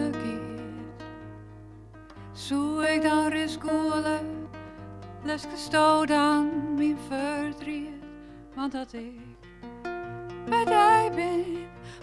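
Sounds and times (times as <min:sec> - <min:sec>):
woman singing: 0:00.0 - 0:01.1, 0:02.4 - 0:04.6, 0:05.2 - 0:09.4, 0:10.4 - 0:12.0
classical guitar: 0:00.0 - 0:12.0.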